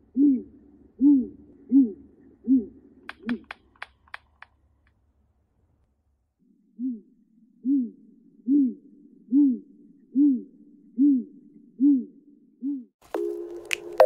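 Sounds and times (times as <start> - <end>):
owl hooting deeply: 0.0 - 3.7, 6.6 - 14.0.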